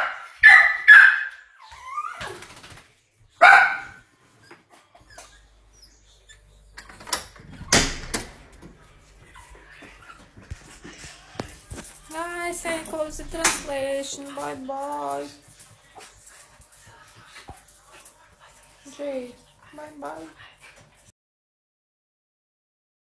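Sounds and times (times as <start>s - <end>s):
dog barking: 0.0s - 1.5s, 3.4s - 4.0s.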